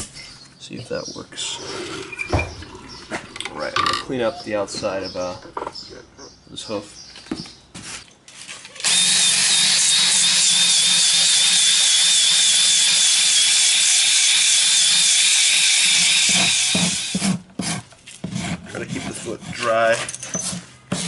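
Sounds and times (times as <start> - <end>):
power grinder on hoof: 8.8 - 17.4.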